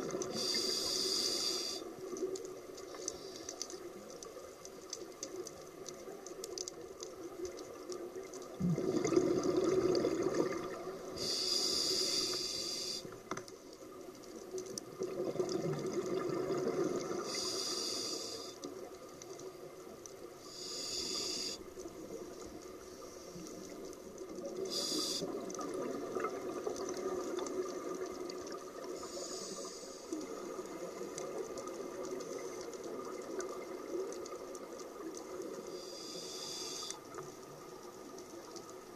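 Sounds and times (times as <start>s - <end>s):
regulator inhale hisses: 0.2s - 1.9s, 3.0s - 3.7s, 11.2s - 13.2s, 17.2s - 18.7s, 20.4s - 21.8s, 24.6s - 25.5s, 28.9s - 30.3s, 35.6s - 37.2s.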